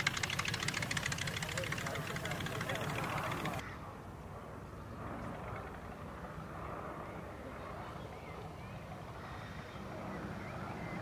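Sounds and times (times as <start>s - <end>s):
propeller plane engines droning: 0.0s - 11.0s
faint voices: 0.7s - 3.7s.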